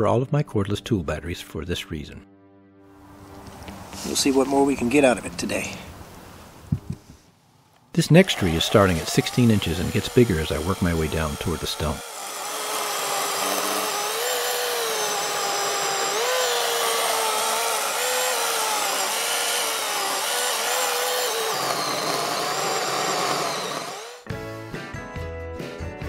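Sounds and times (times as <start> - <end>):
electric chainsaw cutting wood: 8.0 - 24.3.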